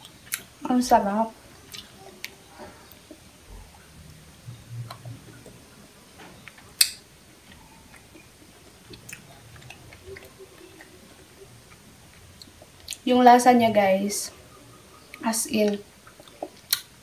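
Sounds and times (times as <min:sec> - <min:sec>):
person chewing: 0:00.0 - 0:00.6, 0:01.5 - 0:03.8, 0:06.4 - 0:13.1, 0:15.7 - 0:17.0.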